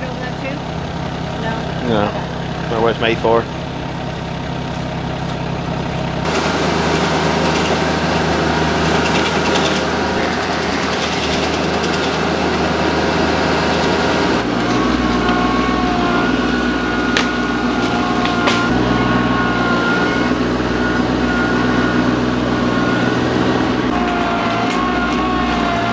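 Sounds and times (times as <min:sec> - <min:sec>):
diesel tractor engine under load: 0:00.0 - 0:25.9
stump grinder chewing wood: 0:00.0 - 0:25.9.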